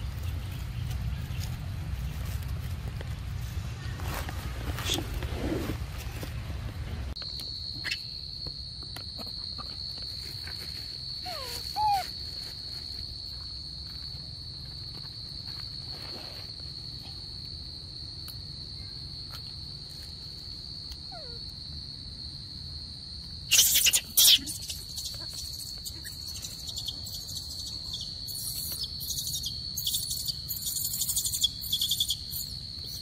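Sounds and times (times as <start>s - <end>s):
animals rustling on dry leaves: 0.0s - 7.1s
squeaky monkey call: 11.2s - 12.1s, 23.5s - 33.0s
high-pitched insect drone: 23.5s - 33.0s.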